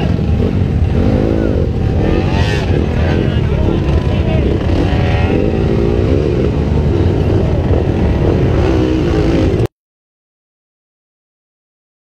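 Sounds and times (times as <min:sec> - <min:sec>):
dirt bike engines revving: 0:00.0 - 0:09.7.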